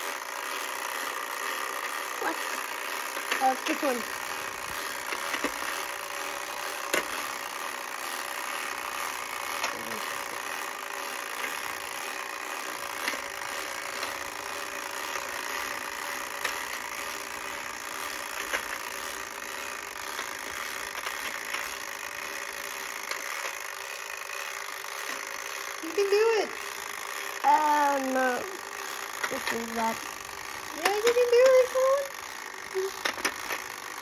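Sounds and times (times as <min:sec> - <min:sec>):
clockwork timer ticking: 0:00.0 - 0:34.0
sharp plastic clicks: 0:03.1 - 0:05.9, 0:06.5 - 0:07.3, 0:32.9 - 0:33.7.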